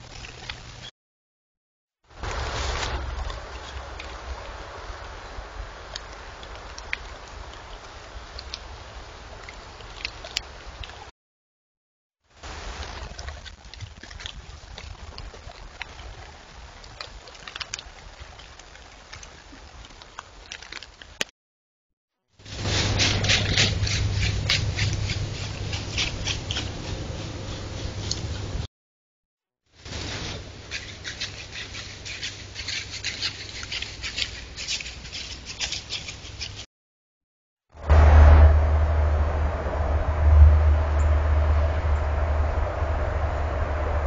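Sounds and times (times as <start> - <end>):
light ticks and rustles: 12.5 - 21.3, 22.8 - 28.7, 29.9 - 36.6
low rumble: 22.5 - 28.7, 37.8 - 44.0
low electronic hum: 37.8 - 44.0.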